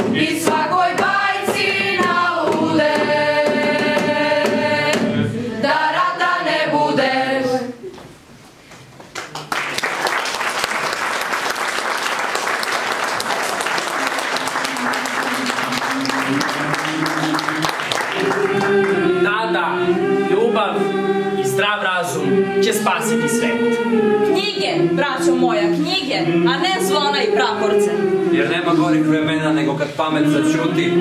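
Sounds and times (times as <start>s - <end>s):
choir singing: 0.0s - 7.9s, 13.0s - 31.0s
audience applause: 9.2s - 18.9s.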